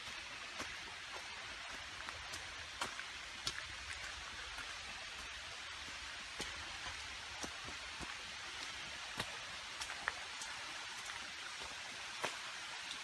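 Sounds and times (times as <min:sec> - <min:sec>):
footsteps on gravel trail: 0:00.0 - 0:13.0.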